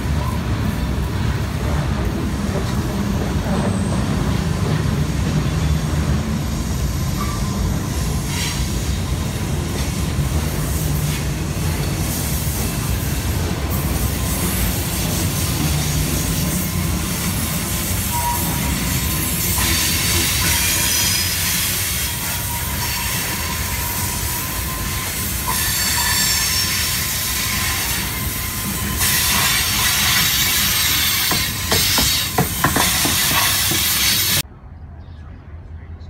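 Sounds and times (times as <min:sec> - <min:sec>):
train wheel rumble: 0:00.0 - 0:34.5
high wheel squeal: 0:03.0 - 0:09.5, 0:14.0 - 0:34.4.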